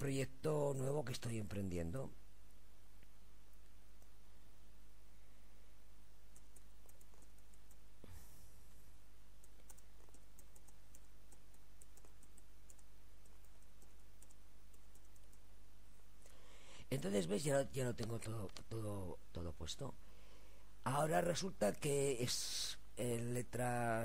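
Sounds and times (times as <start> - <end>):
low electrical hum: 0.0 - 24.0
keyboard typing clicks: 6.3 - 7.8, 9.4 - 15.4.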